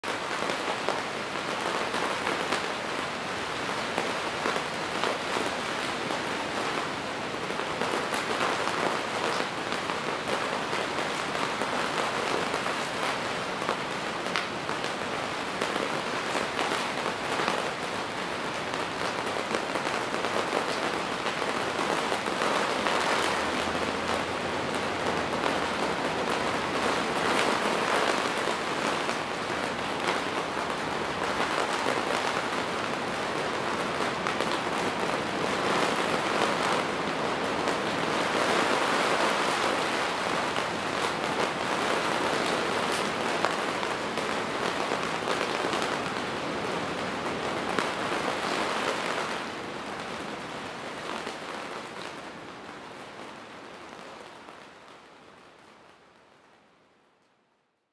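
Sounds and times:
rain on fabric roof: 0.0 - 57.9.

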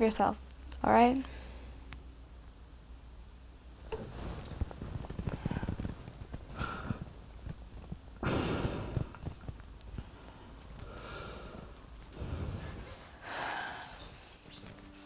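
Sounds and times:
person breathing heavily and sighing: 5.3 - 7.2, 8.2 - 9.4, 10.0 - 14.4.

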